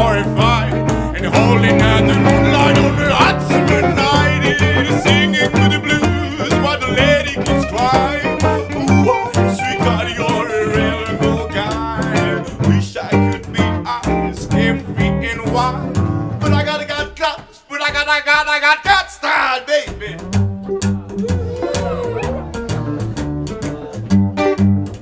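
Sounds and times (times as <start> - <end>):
plucked double bass: 0.0 - 17.0, 19.9 - 25.0
strummed acoustic guitars: 0.0 - 17.0
man singing: 0.0 - 20.3.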